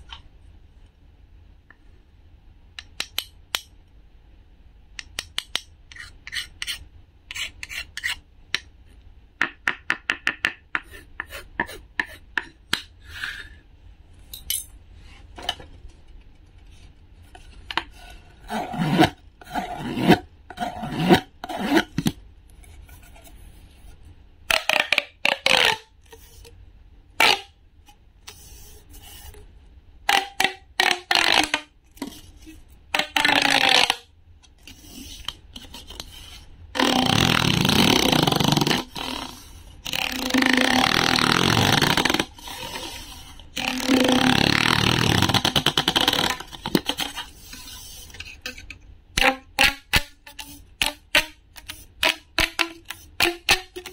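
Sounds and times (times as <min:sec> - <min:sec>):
plastic tube rapid clicking: 0:30.1 - 0:32.1, 0:43.6 - 0:53.9
wooden toy scraping plastic: 0:34.6 - 0:53.9.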